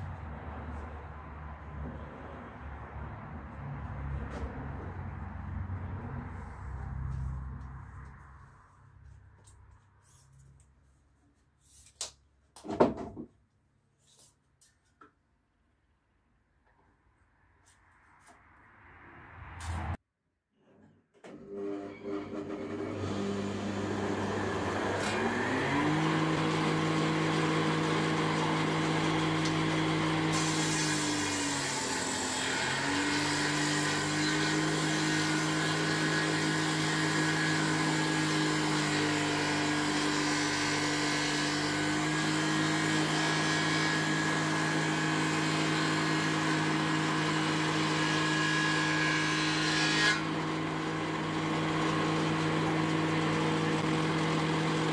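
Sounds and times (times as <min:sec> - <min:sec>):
table saw motor running: 0:21.6 - 0:54.9.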